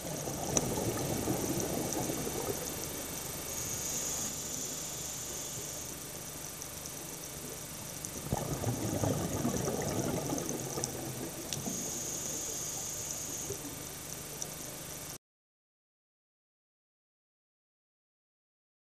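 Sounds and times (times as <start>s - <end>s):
exhaled bubbles rushing: 0.0s - 4.9s, 7.6s - 14.0s
steady underwater hiss: 0.0s - 15.2s
scuba regulator hiss: 3.3s - 6.0s, 11.6s - 13.8s.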